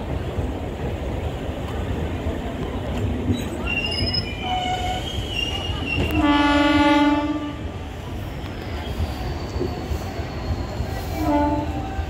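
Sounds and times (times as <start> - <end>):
train coaches rumbling past: 0.0 - 12.0
train horn: 6.0 - 7.7, 11.1 - 12.0.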